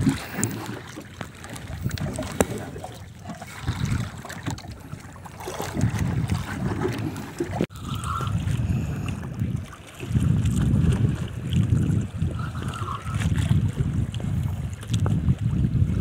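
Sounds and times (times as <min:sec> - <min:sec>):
water washing against hull: 0:00.0 - 0:16.0
wind buffeting microphone: 0:00.0 - 0:16.0.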